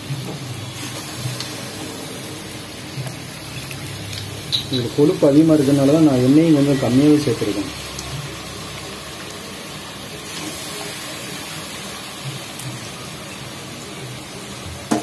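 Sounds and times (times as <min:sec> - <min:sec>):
meat sizzling in oil: 0:00.0 - 0:15.0.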